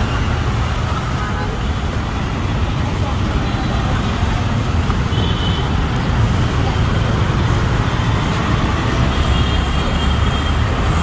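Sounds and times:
roadside traffic rumble: 0.0s - 11.0s.

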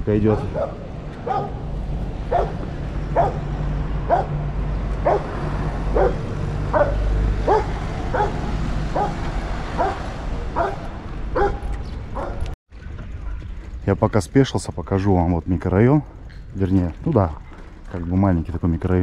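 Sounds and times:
dog barking: 0.3s - 1.6s, 2.3s - 3.5s, 4.1s - 4.4s, 5.0s - 5.3s, 5.9s - 9.2s, 9.8s - 12.5s.

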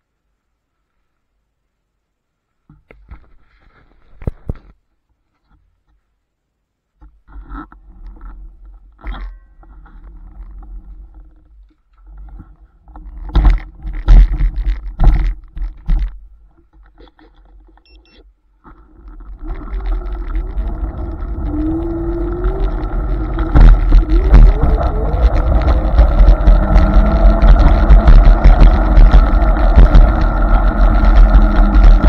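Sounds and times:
low rumble: 18.8s - 32.0s
electric scooter motor whine: 19.0s - 32.0s
loud knocks and thumps: 23.2s - 32.0s.

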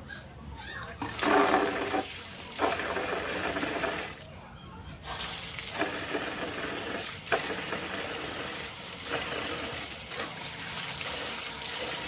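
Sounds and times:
water pouring into plastic bucket: 1.0s - 4.3s, 5.2s - 12.0s.

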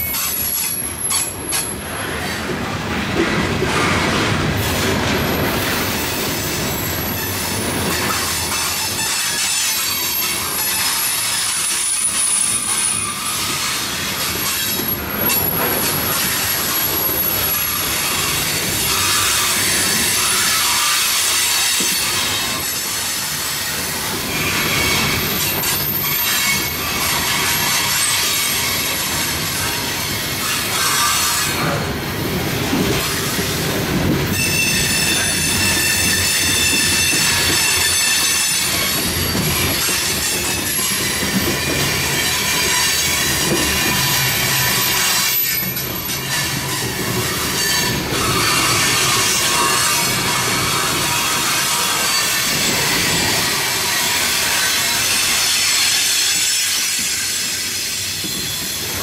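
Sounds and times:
wheels clacking over rail joints: 0.0s - 59.0s
high-pitched wheel squeals: 34.3s - 54.0s.

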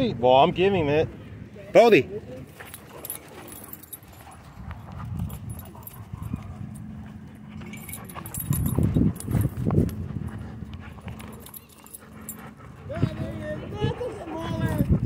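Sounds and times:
steady low rumble: 2.7s - 15.0s
dog making low sounds: 7.6s - 15.0s.

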